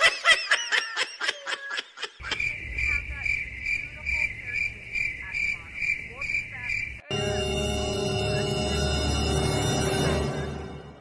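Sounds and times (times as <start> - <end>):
high-pitched laughter: 0.0 - 2.5
crickets chirping: 2.2 - 10.3.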